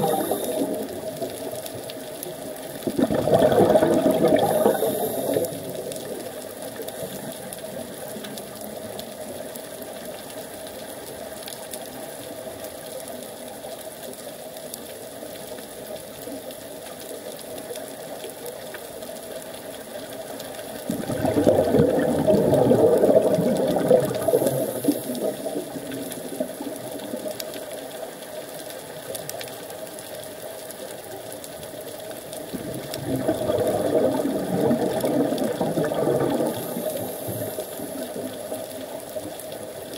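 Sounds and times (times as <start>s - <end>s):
underwater hiss: 0.0s - 1.8s, 3.0s - 8.1s, 20.4s - 29.4s, 32.8s - 39.8s
exhaled bubbles gurgling: 0.0s - 12.5s, 17.8s - 39.9s.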